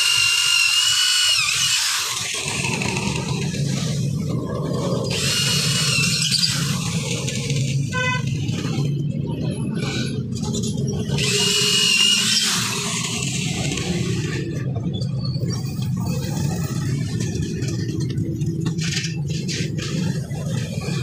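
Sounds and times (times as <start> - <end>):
electric drill whining: 0.0 - 4.0, 5.0 - 7.8, 11.1 - 14.5.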